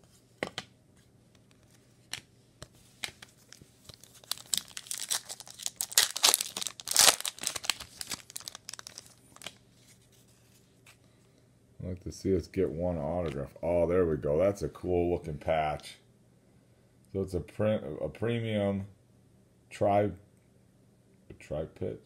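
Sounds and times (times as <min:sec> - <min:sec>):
foil wrapper crinkling and tearing: 0:03.5 - 0:09.6.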